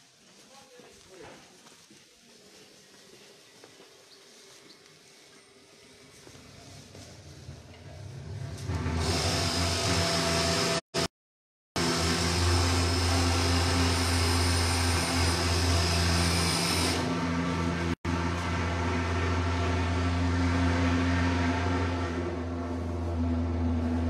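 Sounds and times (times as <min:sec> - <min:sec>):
fogging machine buzzing and hissing: 0:11.8 - 0:17.2.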